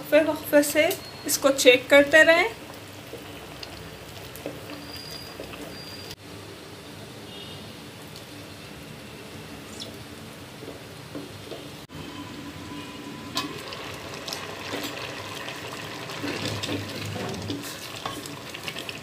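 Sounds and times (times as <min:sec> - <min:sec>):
water bubbling in a pot: 0:02.5 - 0:06.2, 0:11.9 - 0:19.0
wooden spoon scraping a pot: 0:16.1 - 0:19.0.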